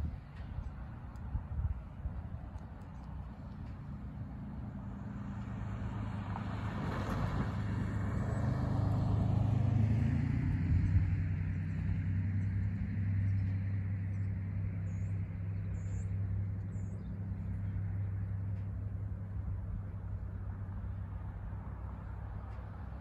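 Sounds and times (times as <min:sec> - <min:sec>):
distant diesel locomotive drone: 0:00.0 - 0:23.0
car tyre noise passing: 0:03.1 - 0:13.6.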